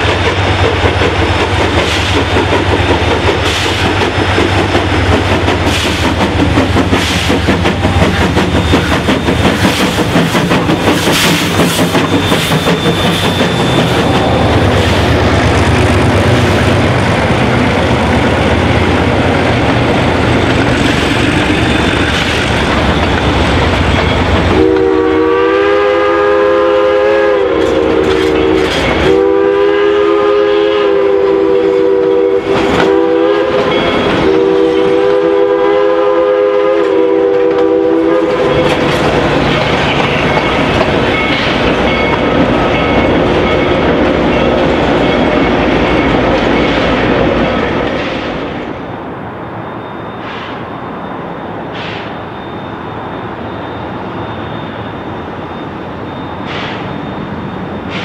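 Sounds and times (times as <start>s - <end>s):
train rumbling with wheel clatter: 0.0s - 58.0s
train chime whistle blasts: 24.0s - 38.9s.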